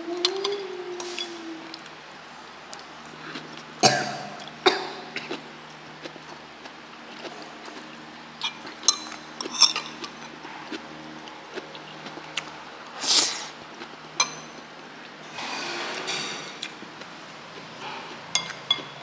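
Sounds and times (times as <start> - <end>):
utensils clinking against dishes: 8.4 - 10.4, 14.2 - 14.6, 15.3 - 16.7, 17.8 - 19.0.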